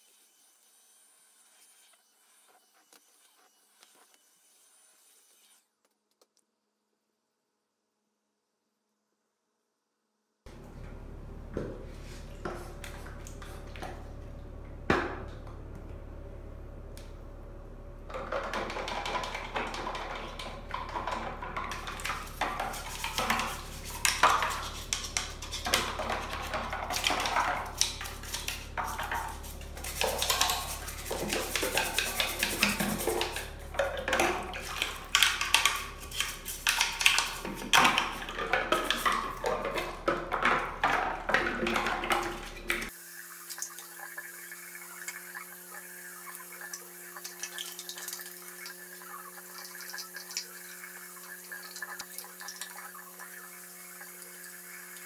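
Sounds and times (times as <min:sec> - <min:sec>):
plastic parts clattering in sink: 0:18.1 - 0:42.9
toothbrush scrubbing: 0:21.7 - 0:40.0, 0:41.8 - 0:55.0
water splashing: 0:26.9 - 0:55.0.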